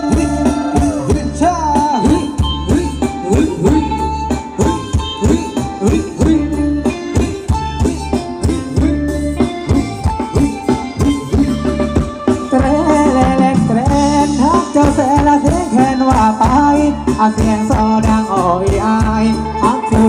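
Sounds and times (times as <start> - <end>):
driving drum beat: 0.0 - 20.0
wavering melody line: 0.0 - 20.0.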